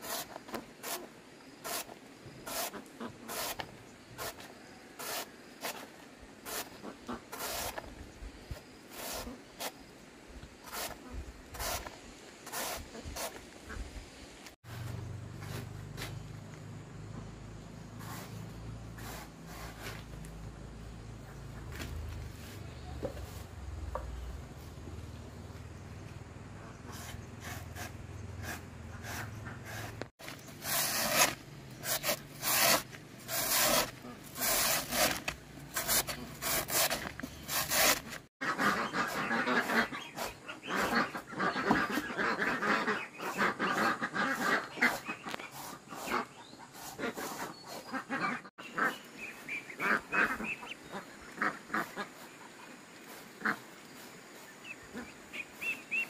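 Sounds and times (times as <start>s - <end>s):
poultry calling: 38.4s - 52.2s.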